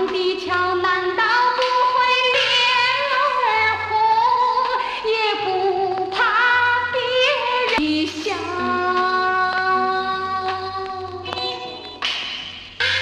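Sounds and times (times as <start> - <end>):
woman singing: 0.0 - 12.0
band accompaniment: 11.3 - 13.0.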